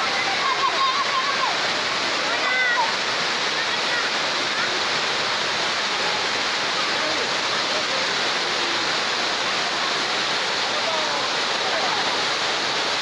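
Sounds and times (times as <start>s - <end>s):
faint voices: 0.0s - 13.0s
water rushing down spillway: 0.0s - 13.0s.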